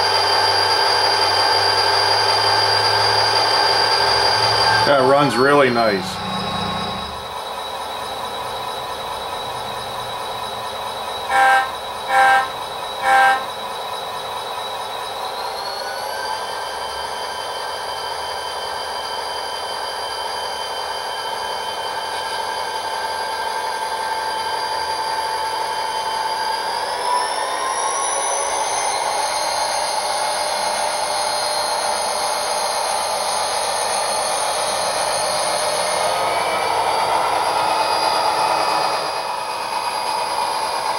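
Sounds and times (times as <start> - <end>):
diesel engine running: 0.0 - 40.9
locomotive horn blasts: 11.2 - 13.6.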